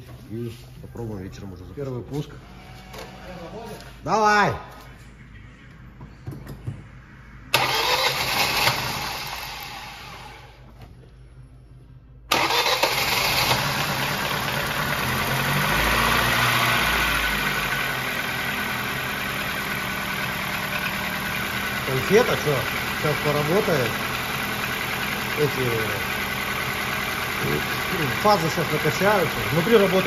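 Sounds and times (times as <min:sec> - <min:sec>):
car engine starting and idling: 0:06.8 - 0:30.0.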